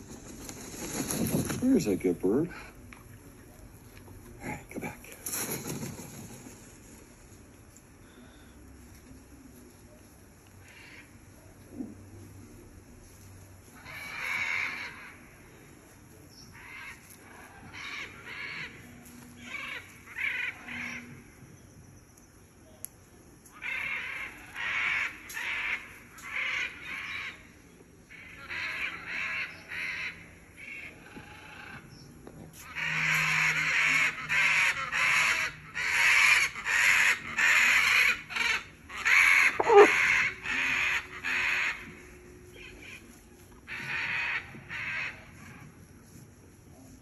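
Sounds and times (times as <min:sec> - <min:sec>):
macaws squawking: 0:10.6 - 0:11.9, 0:13.8 - 0:15.4, 0:16.6 - 0:21.2, 0:23.6 - 0:27.5, 0:28.1 - 0:31.9, 0:32.6 - 0:45.7.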